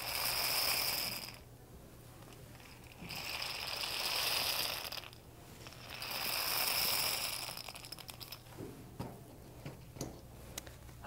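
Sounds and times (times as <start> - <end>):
rain stick beans rattling: 0.0 - 1.4, 2.5 - 8.5.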